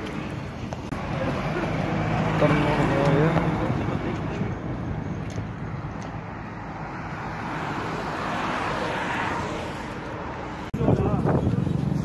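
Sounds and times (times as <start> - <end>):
vehicle passing: 0.9 - 10.7.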